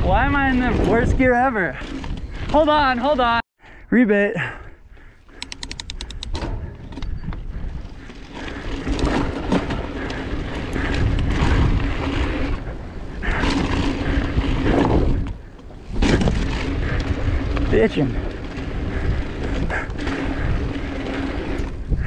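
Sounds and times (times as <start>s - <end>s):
bike clicking and rattling: 0.0s - 3.4s, 5.0s - 22.0s
bike tyres on dirt trail: 0.0s - 3.8s, 4.4s - 22.0s
wind on microphone: 5.5s - 22.0s.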